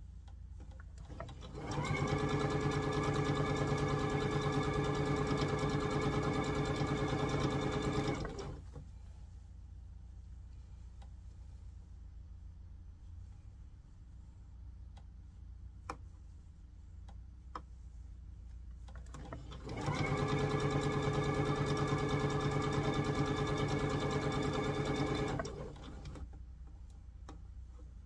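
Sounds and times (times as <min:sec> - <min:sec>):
electric sewing machine running: 0:01.3 - 0:08.5, 0:19.6 - 0:26.1.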